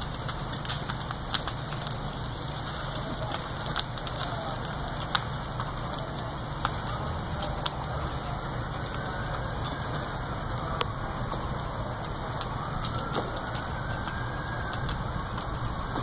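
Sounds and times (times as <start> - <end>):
fire crackling and popping: 0.0 - 16.0
steady rushing of fire: 0.0 - 16.0.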